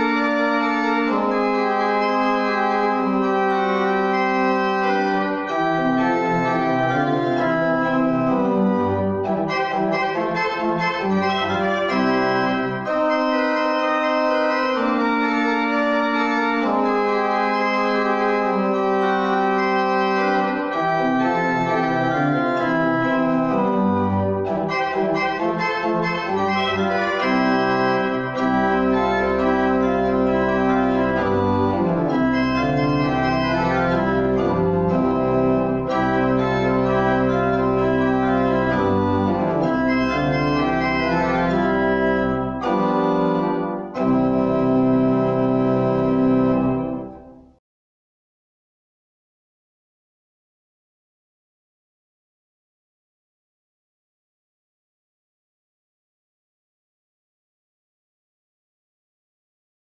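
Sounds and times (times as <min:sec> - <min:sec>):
church pipe organ chords: 0:00.0 - 0:47.4.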